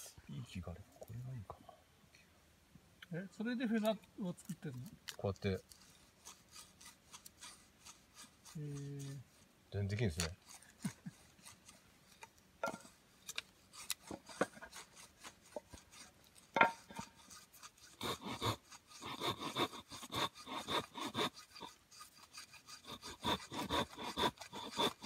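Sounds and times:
hatchet scraping wood: 3.8s - 25.0s.

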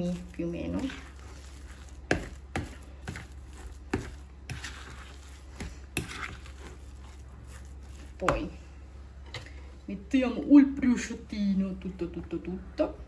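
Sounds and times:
fork mixing mashed potato: 0.0s - 8.7s.

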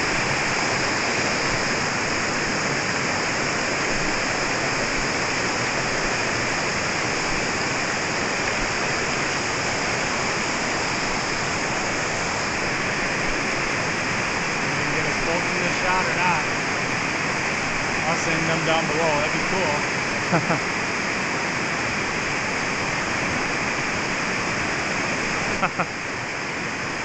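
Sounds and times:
waterfall rushing over rock: 0.0s - 27.0s.

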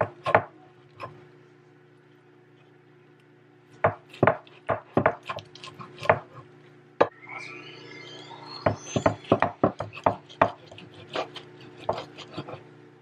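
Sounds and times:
thin squeal: 7.1s - 9.7s.

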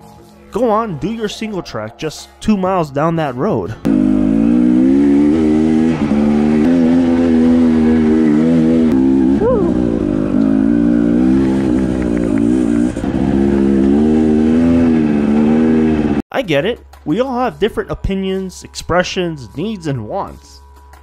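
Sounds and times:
dirt bike engine revving: 3.8s - 16.2s.

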